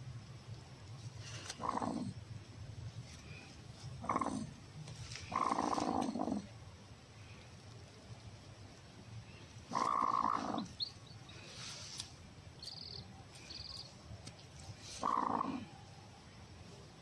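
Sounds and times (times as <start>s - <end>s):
chicks peeping faintly: 0.1s - 17.0s
hen growling: 1.3s - 2.2s, 3.8s - 6.6s, 9.6s - 10.8s, 14.8s - 15.8s.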